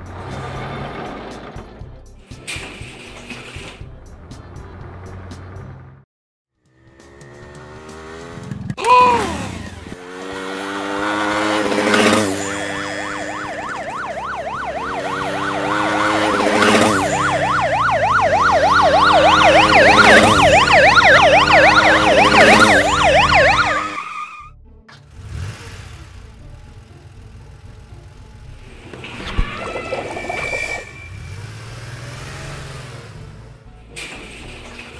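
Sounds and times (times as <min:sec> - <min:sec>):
engine hum: 0:00.0 - 0:06.0, 0:06.6 - 0:34.9
horn honk with falling pitch: 0:10.7 - 0:24.6, 0:29.1 - 0:31.8
police siren yelping: 0:11.8 - 0:24.5.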